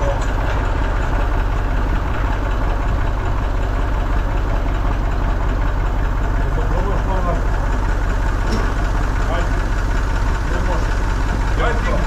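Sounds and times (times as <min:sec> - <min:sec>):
tractor engine idling: 0:00.0 - 0:12.0.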